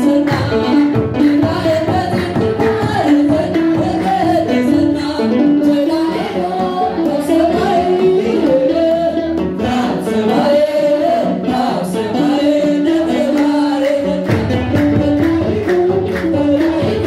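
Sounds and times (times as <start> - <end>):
group singing a hymn: 0.0 - 17.0.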